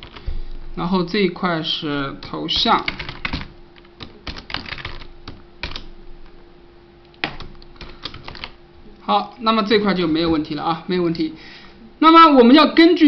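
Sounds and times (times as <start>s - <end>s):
faint steady hum: 0.0s - 13.0s
keyboard typing: 1.9s - 5.9s, 7.2s - 8.6s.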